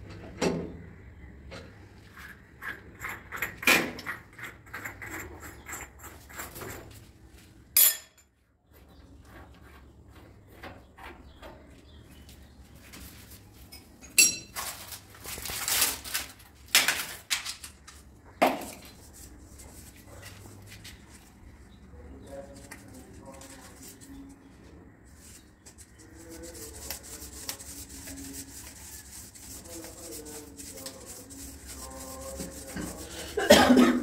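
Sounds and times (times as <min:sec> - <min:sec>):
sharp ringing metal clinks: 0:14.1 - 0:14.5.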